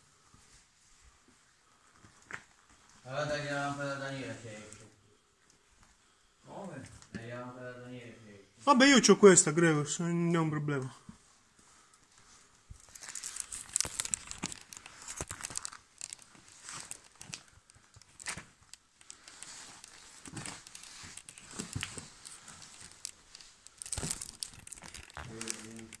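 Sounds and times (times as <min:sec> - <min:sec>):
wicker basket creaking and rustling: 0:11.7 - 0:26.0.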